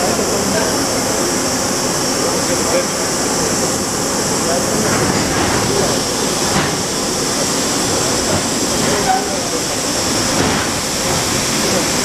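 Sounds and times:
train rumble with hiss: 0:00.0 - 0:12.0.

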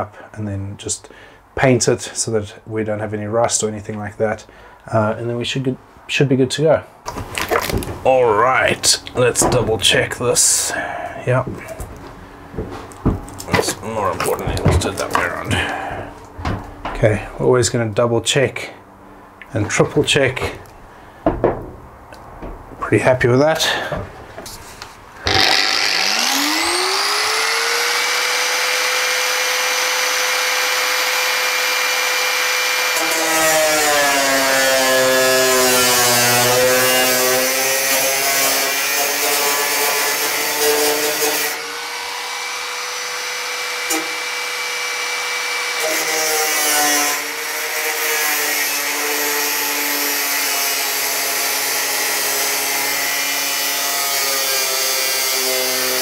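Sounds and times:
angle grinder cutting steel: 0:25.2 - 0:56.0.

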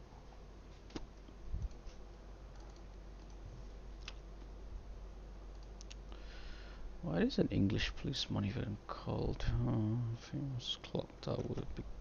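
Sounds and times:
low steady hum: 0:00.0 - 0:12.0
computer clicks: 0:05.5 - 0:06.0.

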